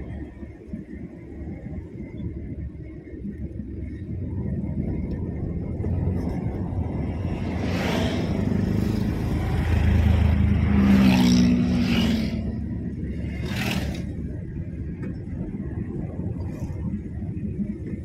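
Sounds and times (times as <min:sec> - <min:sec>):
car engine and road rumble: 0:00.0 - 0:18.0
oncoming vehicles passing: 0:06.4 - 0:14.3.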